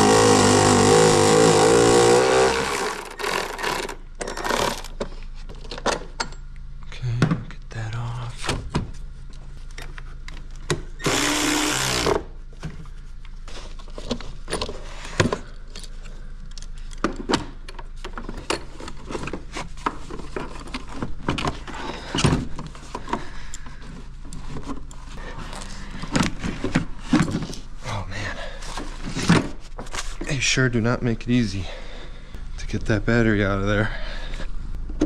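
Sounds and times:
cordless ratchet whirring: 0.0 - 4.9, 11.0 - 12.2.

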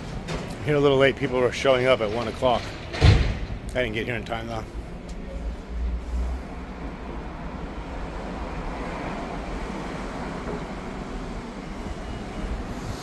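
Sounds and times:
hum of passing vehicles: 4.4 - 13.0.

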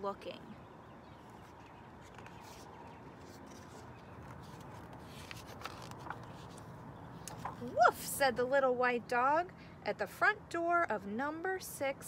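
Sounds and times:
paper pages rustling: 1.2 - 7.8.

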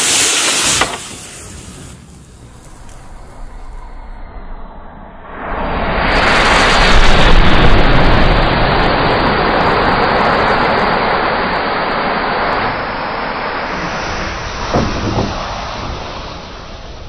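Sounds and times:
whoosh of matches igniting: 0.0 - 3.3.

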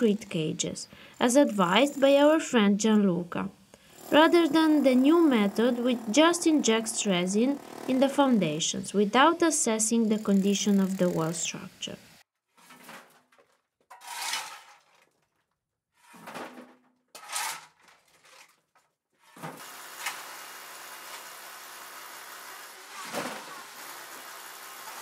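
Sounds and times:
shovel scraping rubble: 12.6 - 15.2, 16.0 - 18.7.

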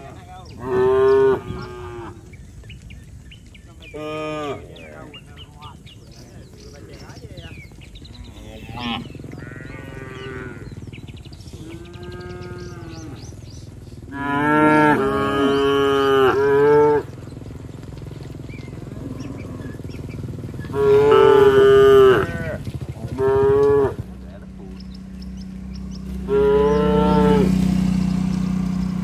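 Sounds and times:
cattle mooing: 0.0 - 2.3, 3.9 - 5.0, 8.1 - 10.9, 11.6 - 13.4, 14.1 - 17.2, 18.8 - 19.9, 20.6 - 24.1, 26.1 - 27.8.

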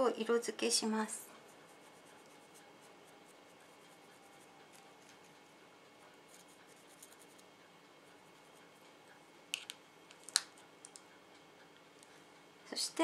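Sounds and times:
makeup brush scratching: 1.5 - 5.4, 6.3 - 7.5.

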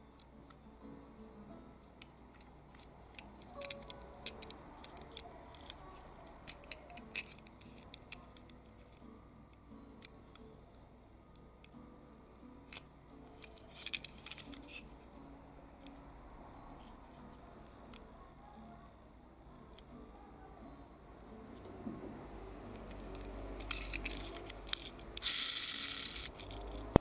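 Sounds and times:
fingers handling toy car clicks: 2.0 - 9.0, 13.4 - 14.9, 22.8 - 27.0.

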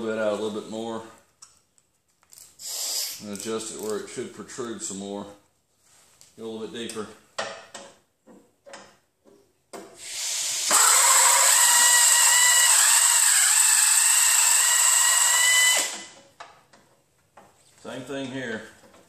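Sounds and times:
electric drill whining into metal: 10.0 - 16.2.

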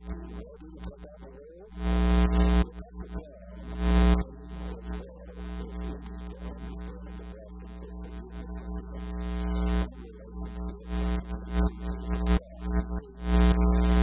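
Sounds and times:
electrical mains hum: 0.0 - 14.0.

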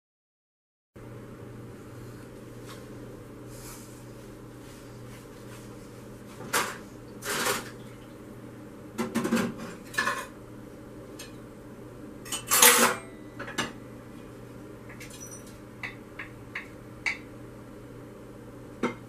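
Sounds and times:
dishes clinking and clattering: 9.0 - 10.4, 12.3 - 13.8, 14.9 - 17.3.

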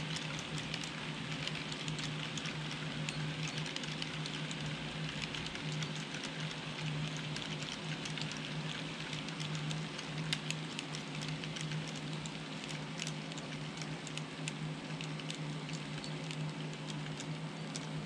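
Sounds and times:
model train wheels clicking: 0.0 - 18.0
steady low hum: 0.0 - 18.0.

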